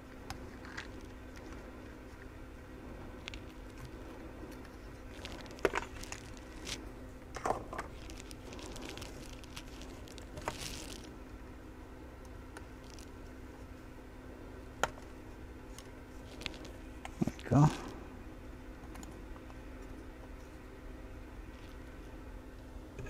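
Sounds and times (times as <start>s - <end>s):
faint steady hum: 0.0s - 23.0s
clicks and rustles of handling: 3.1s - 11.1s, 15.7s - 18.0s.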